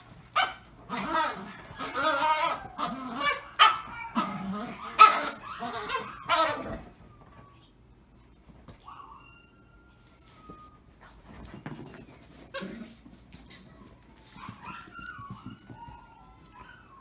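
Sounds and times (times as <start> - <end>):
small dog whining: 8.8 - 10.8.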